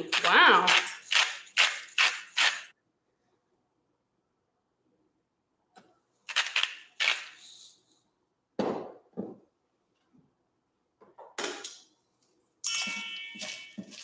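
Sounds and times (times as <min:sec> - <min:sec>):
salt grinder grinding: 0:00.0 - 0:02.7.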